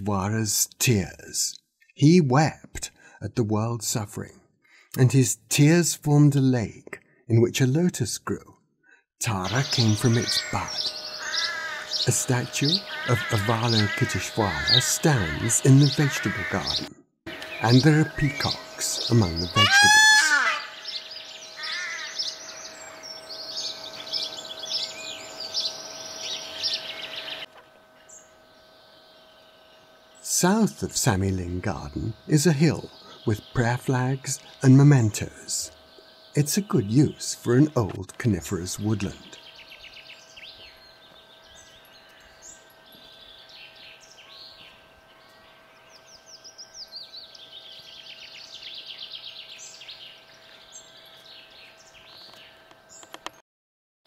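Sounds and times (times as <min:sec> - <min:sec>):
wild birds singing: 0:08.8 - 0:53.4
small songbirds chirping: 0:09.2 - 0:19.6, 0:20.6 - 0:53.4
faint steady hum: 0:09.2 - 0:53.3.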